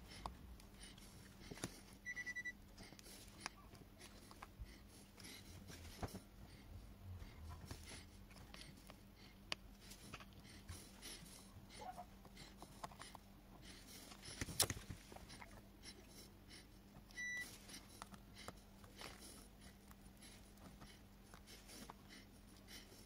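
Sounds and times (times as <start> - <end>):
steady low hum: 0.0 - 23.0
short high beeps: 2.1 - 2.5.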